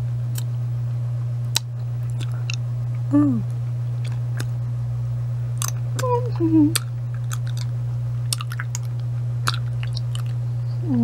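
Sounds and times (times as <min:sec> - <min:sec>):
low hum: 0:00.0 - 0:11.0
person humming mm: 0:03.1 - 0:03.5, 0:06.0 - 0:06.8, 0:10.7 - 0:11.0.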